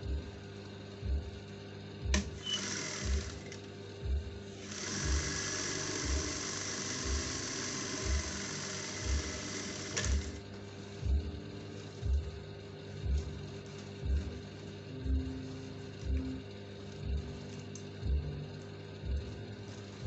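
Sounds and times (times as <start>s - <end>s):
background music with slow beat: 0.0s - 20.0s
sewing machine running: 2.1s - 3.6s, 4.6s - 10.5s.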